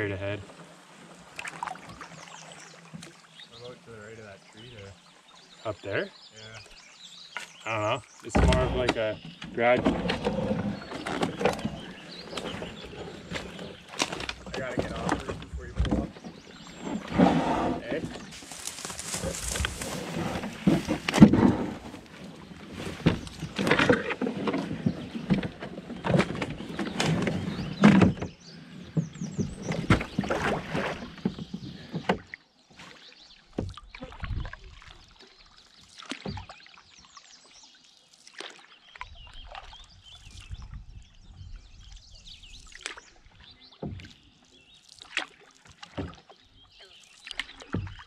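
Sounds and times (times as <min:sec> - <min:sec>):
canoe paddle strokes: 0:00.3 - 0:03.9, 0:08.3 - 0:48.0
canoe scraping over sticks: 0:08.3 - 0:32.2.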